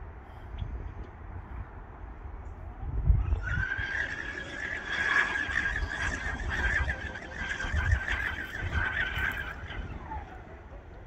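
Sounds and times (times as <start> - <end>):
electric boat motor whining: 3.2 - 11.0.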